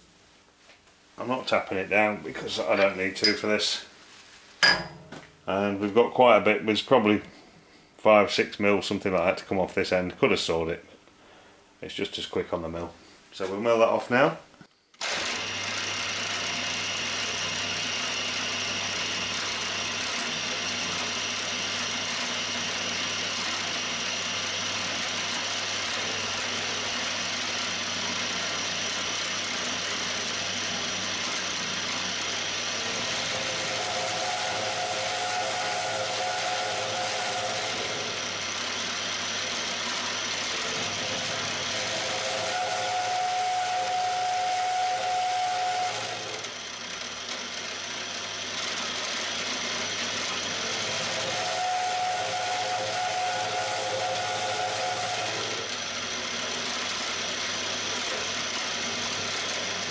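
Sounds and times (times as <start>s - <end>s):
milling machine cutting metal: 15.0s - 59.9s.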